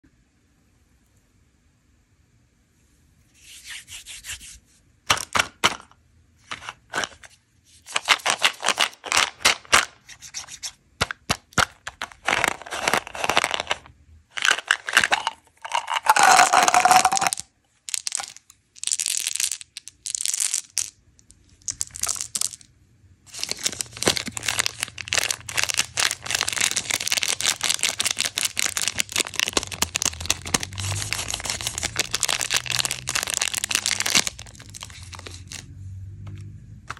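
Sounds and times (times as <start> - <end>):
candy wrapper crinkling: 7.9 - 22.7, 23.3 - 35.7
plastic bottle clicking and rattling: 14.4 - 18.4, 23.4 - 35.6.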